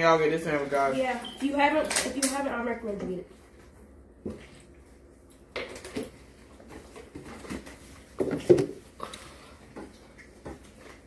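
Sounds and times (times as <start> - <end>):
cups and carton knocking: 8.2 - 8.8.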